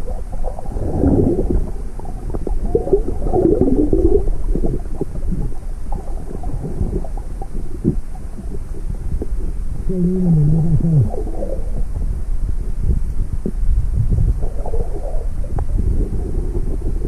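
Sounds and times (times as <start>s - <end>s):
underwater rumbling and bubbling: 0.0s - 17.0s
wavering muffled tones: 9.9s - 11.9s.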